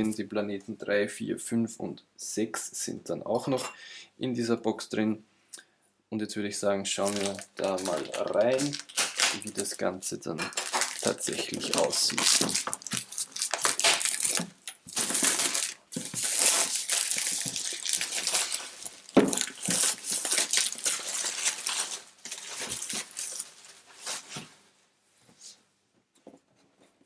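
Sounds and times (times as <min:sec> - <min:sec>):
plastic wrap crinkling: 0:06.9 - 0:24.5
plastic wrap snapping: 0:07.0 - 0:09.8, 0:10.5 - 0:23.6.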